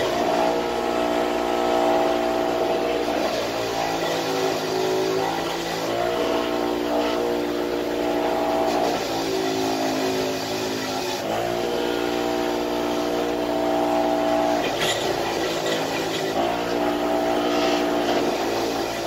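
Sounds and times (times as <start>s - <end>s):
bench grinder motor whine: 0.0s - 19.0s
rough scrubbing on grinding wheel: 0.0s - 19.0s.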